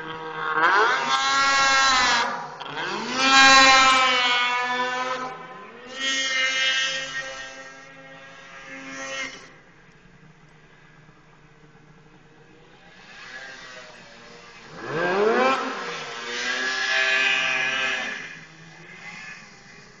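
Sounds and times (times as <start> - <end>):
snowmobile engine revving: 0.0 - 9.8, 12.1 - 20.0.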